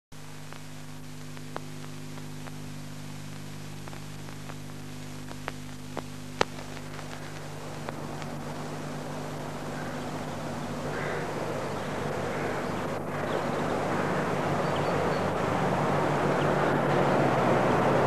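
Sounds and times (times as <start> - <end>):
film crackles and pops: 0.1 - 14.1
electrical hum and hiss: 0.1 - 18.0.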